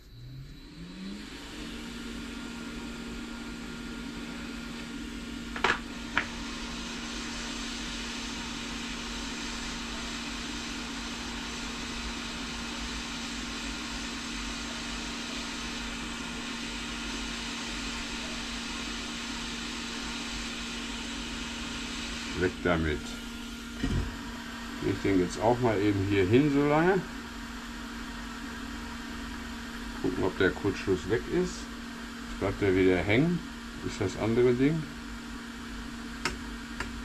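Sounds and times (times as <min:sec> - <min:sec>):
hot air gun blowing: 0:05.6 - 0:23.1.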